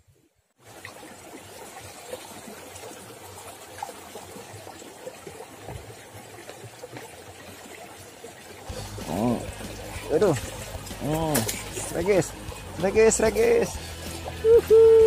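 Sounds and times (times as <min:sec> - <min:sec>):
running water trickling: 0:00.0 - 0:15.0.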